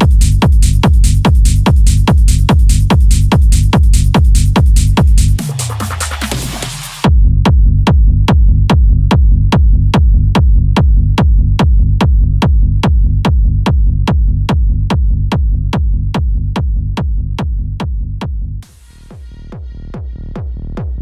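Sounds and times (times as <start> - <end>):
electronic dance music: 0.0 - 7.1
deep bass line: 0.0 - 21.0
heavy kick drum beat: 0.0 - 21.0.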